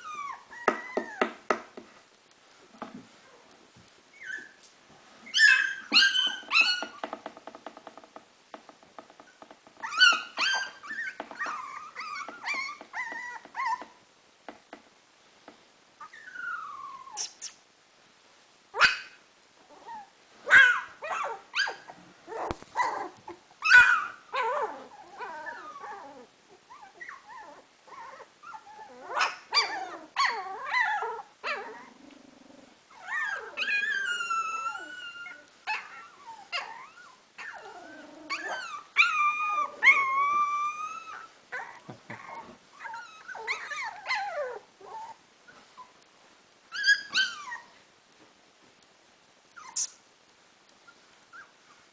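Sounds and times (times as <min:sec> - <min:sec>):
puppies whining and yelping: 0:00.0 - 0:01.4, 0:04.1 - 0:04.6, 0:05.2 - 0:07.2, 0:09.3 - 0:14.0, 0:16.0 - 0:17.5, 0:18.8 - 0:46.0, 0:46.7 - 0:47.8, 0:49.5 - 0:49.9, 0:50.8 - 0:51.9.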